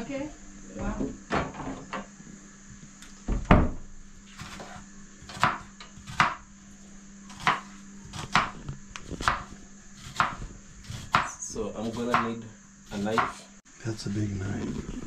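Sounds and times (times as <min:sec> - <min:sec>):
faint steady hum: 0:00.0 - 0:15.0
knife chopping on wooden board: 0:04.4 - 0:06.4, 0:07.3 - 0:08.6, 0:09.2 - 0:13.4.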